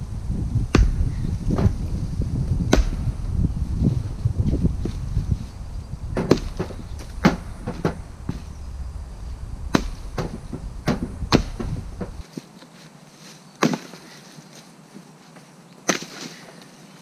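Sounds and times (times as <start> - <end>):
axe chopping firewood: 0.7 - 1.8, 2.5 - 3.4, 6.2 - 8.0, 9.7 - 12.2, 13.6 - 14.1, 15.8 - 16.4.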